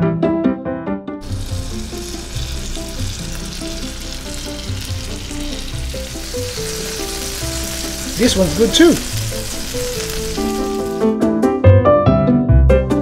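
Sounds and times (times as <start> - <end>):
food sizzling on a hot plate: 1.2 - 11.1.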